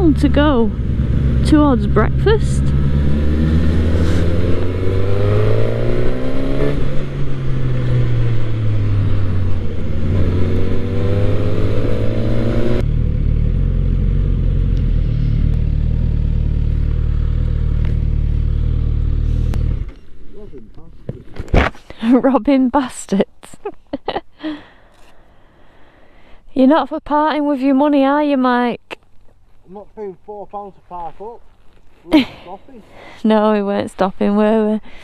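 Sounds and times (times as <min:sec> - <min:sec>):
motorcycle engine revving: 0:00.0 - 0:20.2
motorcycle engine idling: 0:12.8 - 0:20.0.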